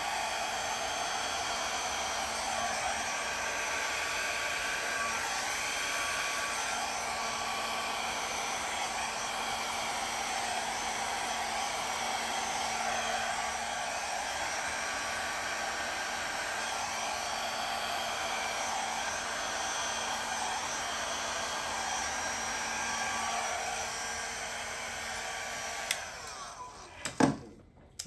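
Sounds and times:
hair dryer running: 0.0s - 27.0s.

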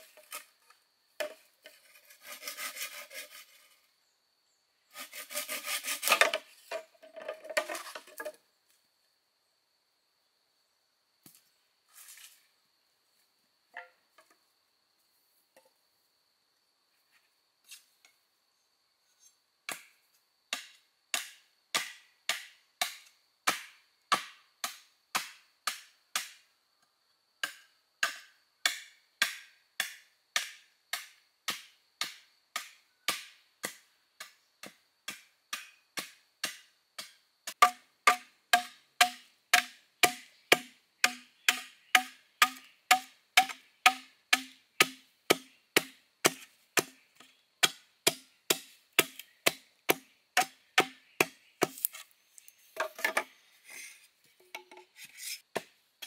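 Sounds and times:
bamboo being chopped: 19.7s - 19.9s, 20.5s - 26.4s, 27.4s - 52.0s, 55.5s - 55.8s.

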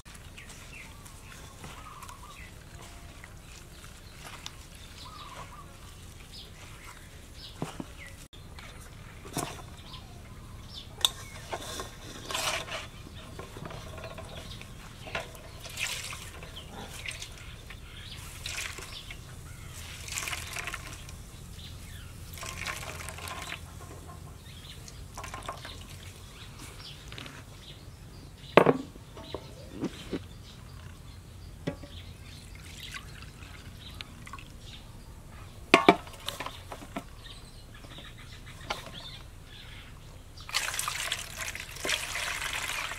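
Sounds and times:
liquid splashing into metal bowl: 15.1s - 17.5s, 19.8s - 21.1s, 22.3s - 23.7s, 40.5s - 42.9s.

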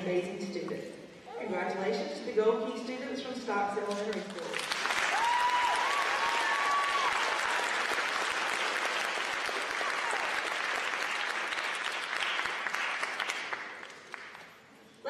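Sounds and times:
audience applauding: 4.5s - 14.6s
high cheer: 4.9s - 13.3s.

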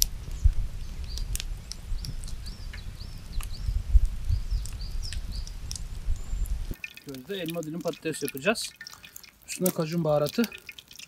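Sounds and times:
low rumble: 0.0s - 6.8s
small bird chirping: 0.0s - 11.0s.

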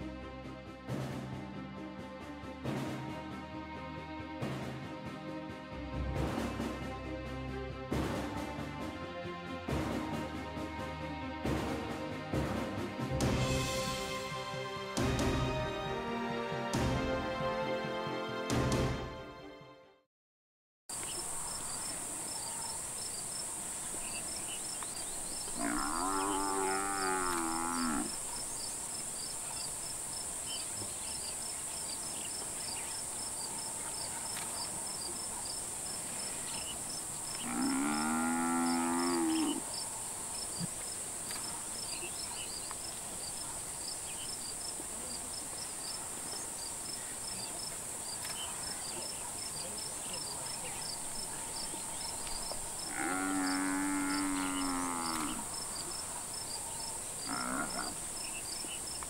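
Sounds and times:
insect hiss and chirping: 20.9s - 59.0s
buffalo bellowing: 25.6s - 28.2s, 37.4s - 39.6s, 52.9s - 55.5s, 57.2s - 58.0s.

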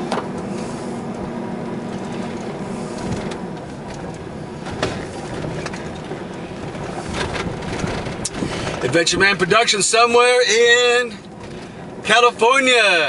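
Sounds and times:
low hum: 0.0s - 9.6s
car engine and road noise: 0.0s - 13.0s.

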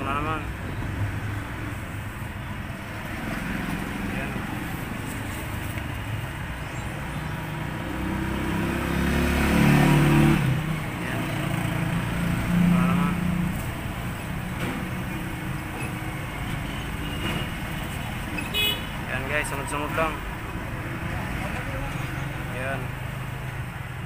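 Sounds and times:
steady traffic hum: 0.0s - 24.0s
vehicle engine passing: 0.9s - 14.2s.

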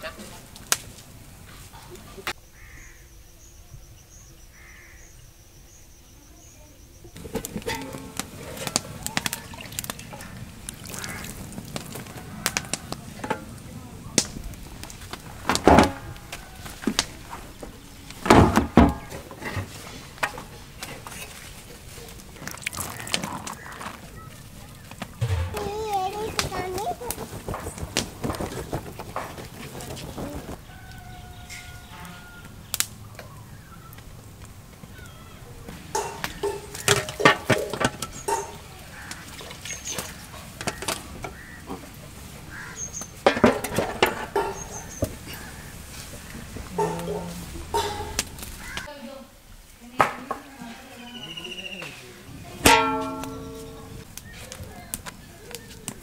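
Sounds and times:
steel pots and lids clinking: 7.2s - 13.7s, 35.9s - 41.6s, 43.2s - 48.8s, 52.6s - 54.1s
bird chirping: 51.0s - 52.1s.

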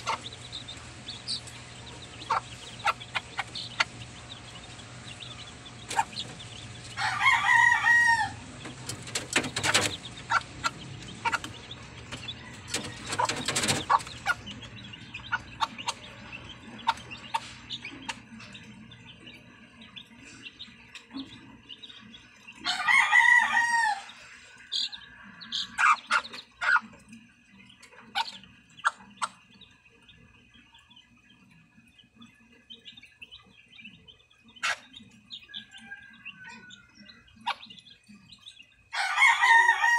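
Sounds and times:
hens clucking: 0.0s - 29.7s
high chick peeps: 0.0s - 39.9s
rooster crowing: 6.9s - 8.5s, 12.2s - 13.4s, 22.6s - 26.0s, 35.5s - 37.2s, 38.9s - 39.9s
sharp clicks: 8.6s - 14.6s.

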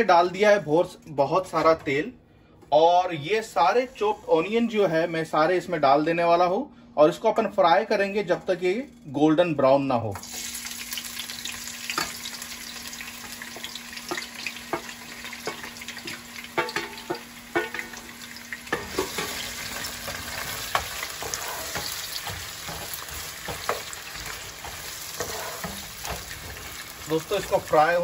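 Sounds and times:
onions sizzling in oil: 10.2s - 28.0s.

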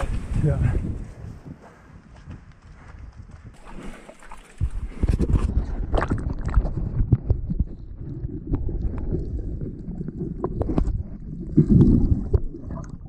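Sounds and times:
underwater rumble of moving water: 3.6s - 13.0s
water swirling with bubbles: 3.6s - 13.0s.

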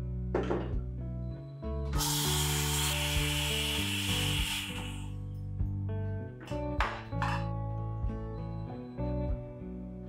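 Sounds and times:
steam wand hissing: 2.0s - 5.1s.

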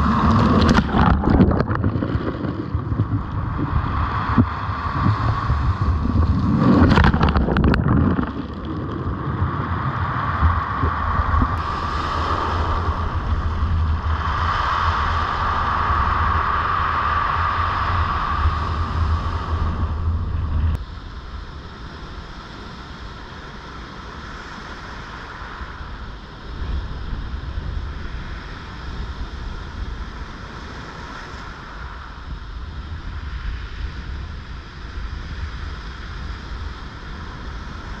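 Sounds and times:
surf breaking on rocks: 0.0s - 9.9s
surf washing over pebbles: 0.0s - 21.2s
wind rumbling on microphone: 0.0s - 38.0s.

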